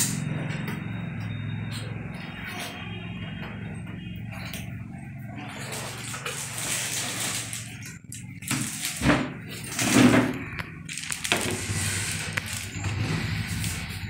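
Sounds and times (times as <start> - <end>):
plastic bag crinkling: 5.6 - 13.9.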